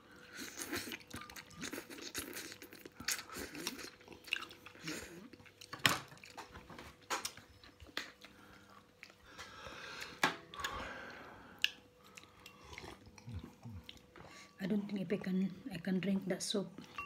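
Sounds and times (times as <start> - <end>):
person slurping and chewing noodles: 0.2 - 6.3, 8.1 - 14.6.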